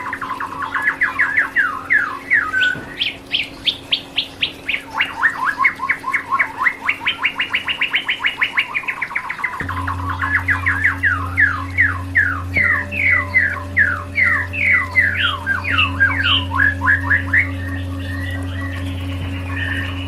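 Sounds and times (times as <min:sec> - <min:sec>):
low electronic drone: 0:00.0 - 0:20.0
songbird whistling: 0:00.0 - 0:20.0.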